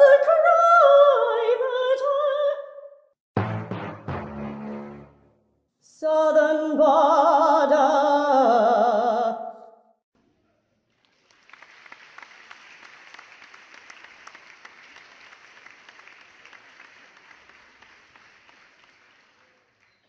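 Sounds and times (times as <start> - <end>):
operatic singing voice: 0.0 - 2.9, 5.9 - 9.7
applause: 10.8 - 20.0.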